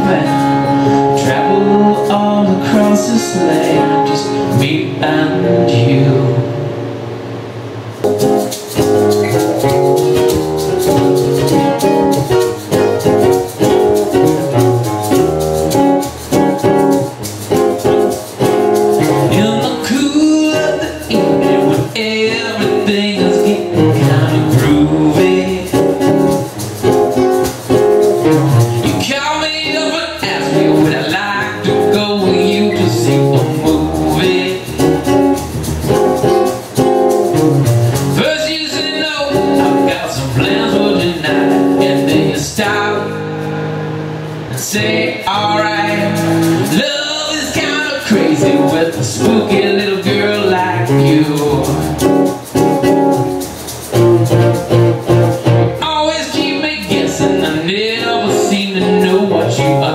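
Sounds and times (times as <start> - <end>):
person singing: 0.0 - 6.8, 19.0 - 26.6, 28.8 - 35.4, 38.1 - 43.5, 44.5 - 52.9, 54.3 - 59.9
acoustic guitars playing: 0.0 - 59.9.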